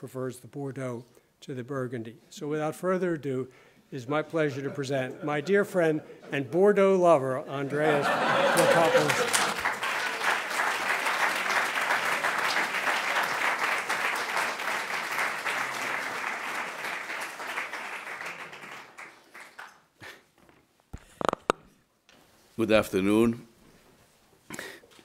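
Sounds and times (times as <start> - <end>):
audience applauding: 8.0 - 19.9.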